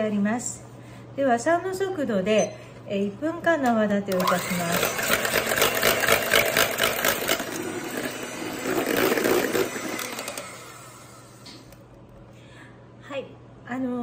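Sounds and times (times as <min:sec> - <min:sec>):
electric hand mixer whipping: 0:04.2 - 0:11.7.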